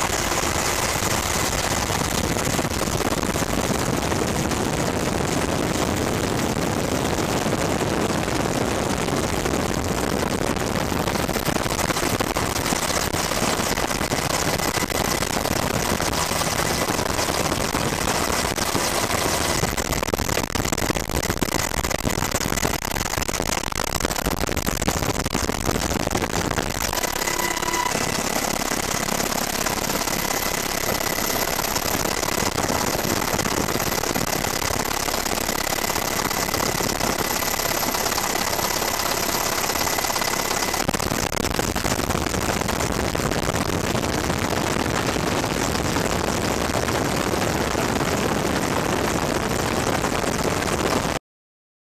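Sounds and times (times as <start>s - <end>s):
thin high whine: 0.0s - 3.2s, 26.7s - 35.0s
helicopter cabin noise: 0.0s - 20.4s, 26.3s - 41.3s.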